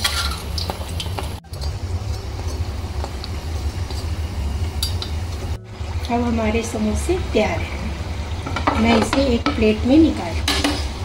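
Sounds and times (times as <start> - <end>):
deep-frying sizzle in hot oil: 0.0 - 6.1
low rumble: 1.3 - 11.0.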